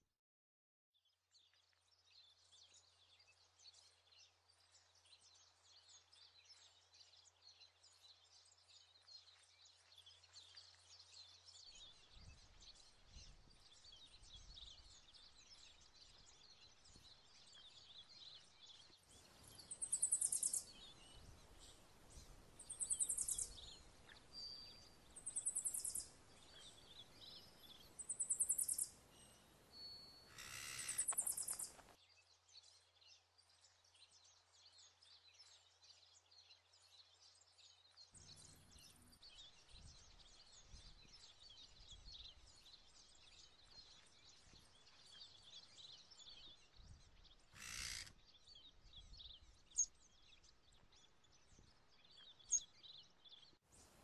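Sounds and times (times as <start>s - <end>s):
high chirping and twittering: 19.4s - 21.3s, 22.6s - 28.9s, 30.3s - 31.8s.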